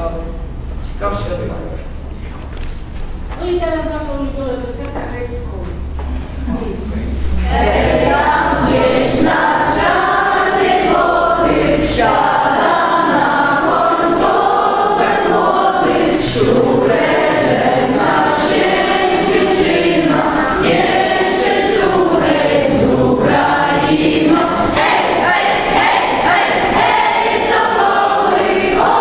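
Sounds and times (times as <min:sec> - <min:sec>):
children's choir singing: 0:07.3 - 0:29.0.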